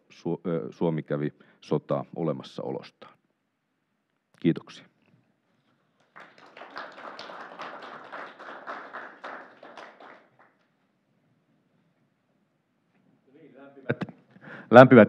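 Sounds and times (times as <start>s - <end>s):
audience applauding: 6.0s - 10.6s.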